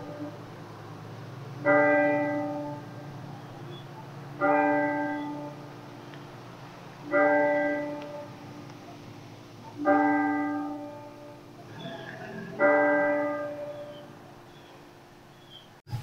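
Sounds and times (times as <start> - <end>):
church bell tolling: 0.0 - 0.5, 1.6 - 6.1, 6.9 - 9.0, 9.6 - 14.6.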